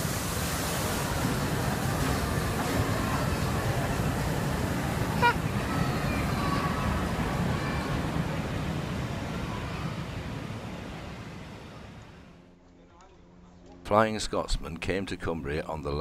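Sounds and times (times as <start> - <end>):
steam train rumble and hiss: 0.0 - 12.3.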